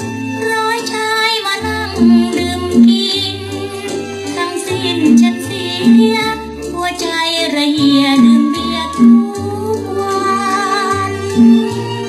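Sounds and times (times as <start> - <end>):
small band playing: 0.0 - 12.0
woman singing with vibrato: 0.5 - 12.0
repeating bass line: 5.0 - 6.3, 7.8 - 9.4, 11.3 - 11.8.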